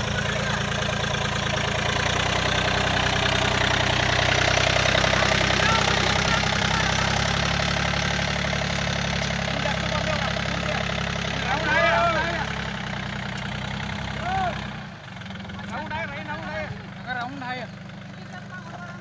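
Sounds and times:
faint men's voices: 0.0 - 1.7, 3.0 - 12.7
tractor diesel engine running: 0.0 - 19.0.

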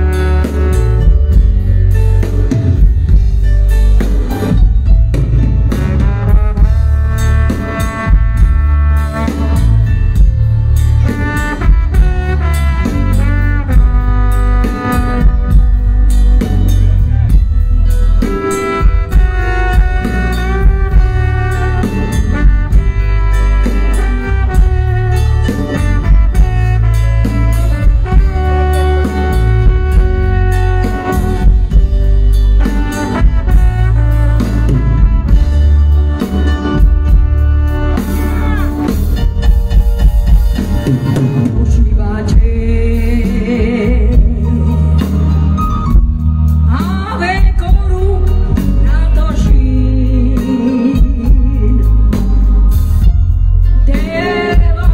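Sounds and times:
drum kit: 0.0 - 54.9
heavy bass line: 0.0 - 54.9
saxophones and brass melody: 0.0 - 54.9.

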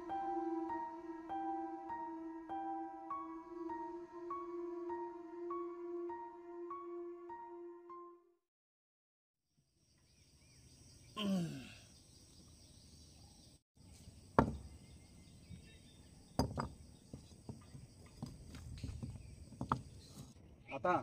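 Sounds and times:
faint birds: 9.5 - 21.0
insects: 9.6 - 21.0
sharp knocks: 14.4 - 14.7.

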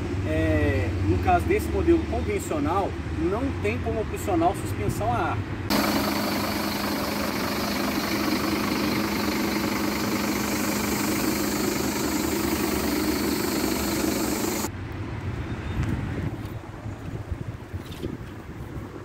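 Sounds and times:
engine idling: 5.7 - 14.7
wind noise on microphone: 15.1 - 19.0.

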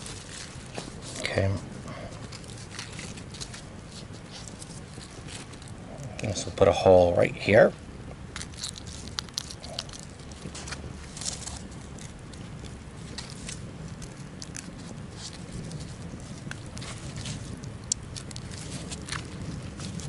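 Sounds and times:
low background noise: 0.0 - 20.0.

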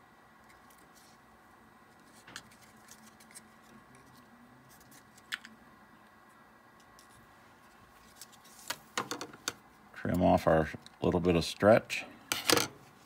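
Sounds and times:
tape rustling: 2.0 - 5.5.

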